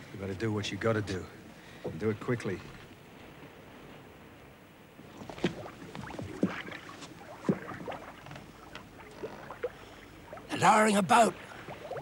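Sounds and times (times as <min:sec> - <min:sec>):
soft water splashes: 0:01.6 - 0:12.0
boat creaking: 0:05.2 - 0:12.0.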